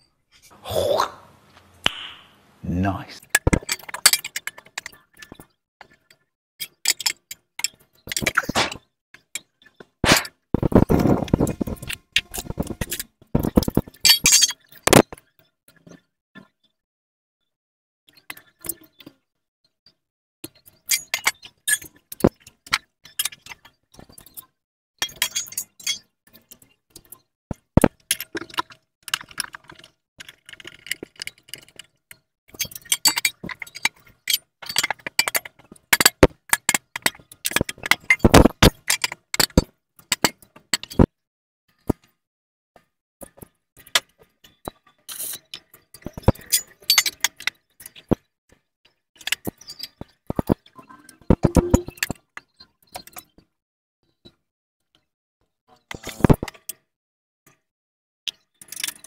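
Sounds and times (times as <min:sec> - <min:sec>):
metal parts and hand tools clinking: 0:03.2 - 0:05.5, 0:10.0 - 0:15.1, 0:25.0 - 0:26.0, 0:32.5 - 0:41.1, 0:45.1 - 0:48.2.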